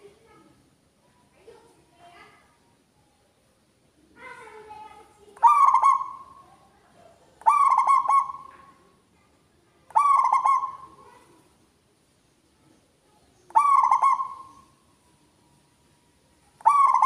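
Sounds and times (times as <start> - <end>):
dove cooing: 5.4 - 6.4, 7.4 - 8.8, 9.9 - 11.1, 13.5 - 14.7, 16.6 - 17.0.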